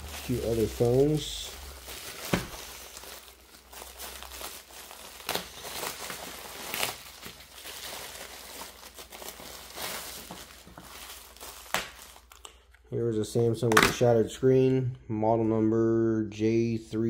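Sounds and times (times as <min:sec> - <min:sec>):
plastic packaging crinkling: 0:00.0 - 0:12.8.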